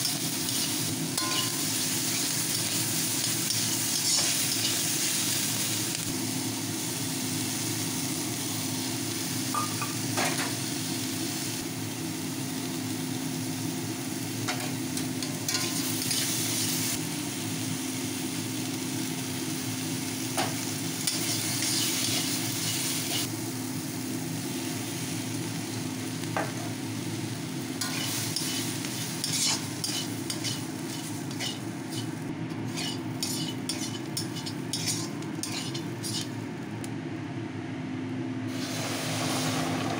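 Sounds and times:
vegetables sizzling in a pan: 0.0s - 36.7s, 38.5s - 39.9s
spatula scraping and tapping pan: 29.3s - 36.3s.

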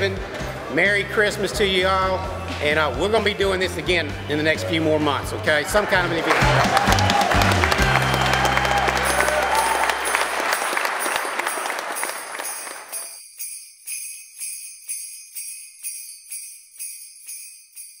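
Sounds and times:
music: 0.0s - 18.0s
applause: 5.9s - 13.1s
sleigh bells jingling: 8.9s - 18.0s.

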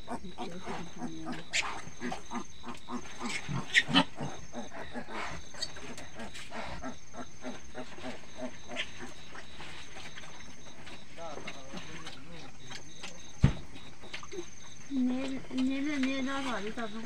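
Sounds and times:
pig squealing: 0.0s - 9.2s
pig grunting: 0.0s - 9.6s.

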